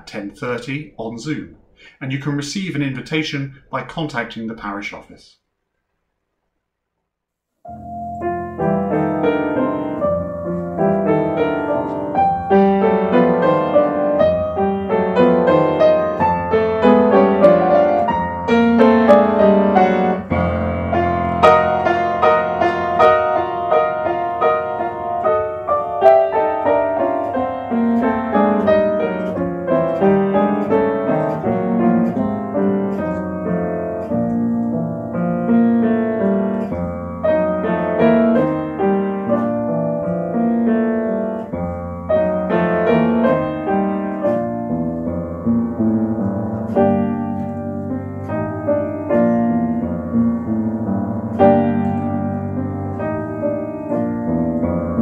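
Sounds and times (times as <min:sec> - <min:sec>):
upright piano playing: 0:07.6 - 0:55.0.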